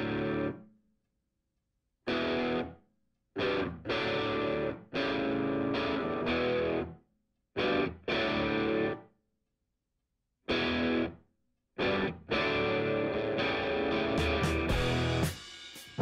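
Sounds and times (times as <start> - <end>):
distorted electric guitar chords: 0.0 - 0.6, 2.1 - 2.8, 3.4 - 6.9, 7.6 - 9.0, 10.5 - 11.2, 11.8 - 15.4.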